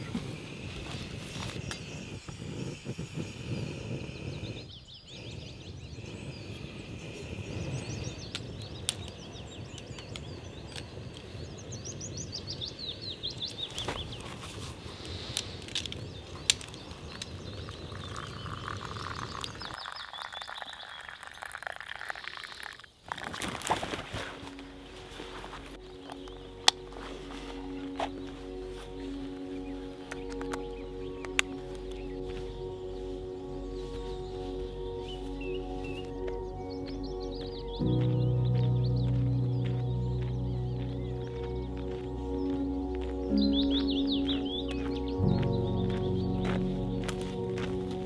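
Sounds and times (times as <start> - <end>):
songbirds chirping: 0.0 - 48.0
water pouring into plastic cup: 17.9 - 24.3.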